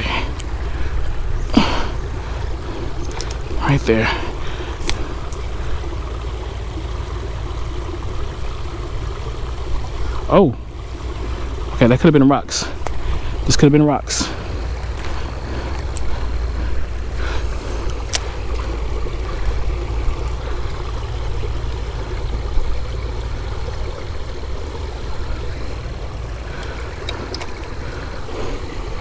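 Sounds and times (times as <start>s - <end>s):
creek water rushing: 0.0s - 29.0s
faint clicks: 3.0s - 3.6s, 4.8s - 5.5s.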